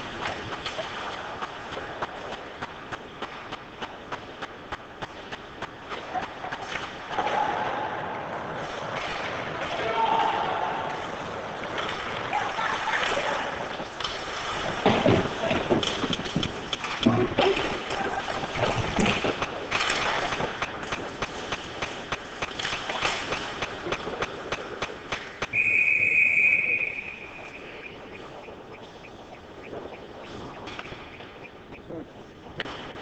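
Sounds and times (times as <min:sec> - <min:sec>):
hockey sticks clacking: 0:00.0 - 0:07.8, 0:08.4 - 0:31.9
skates scraping on ice: 0:00.0 - 0:33.0
bodies knocking against boards: 0:14.7 - 0:17.8
referee's whistle: 0:25.5 - 0:28.5.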